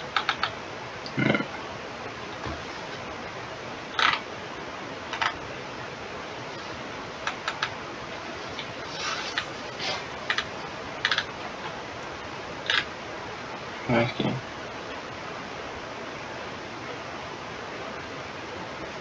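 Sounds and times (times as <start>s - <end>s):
steady background hiss: 0.0s - 19.0s
computer mouse clicks: 0.1s - 0.6s, 7.3s - 7.7s, 10.3s - 11.3s.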